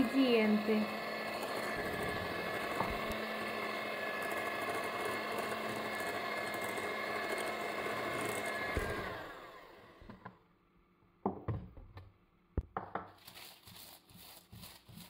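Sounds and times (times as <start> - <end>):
paper rubbing and rustling: 13.2 - 15.0.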